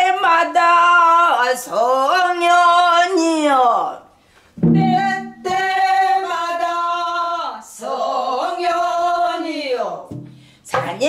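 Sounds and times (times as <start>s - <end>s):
person singing unaccompanied: 4.6s - 10.1s, 10.7s - 11.0s.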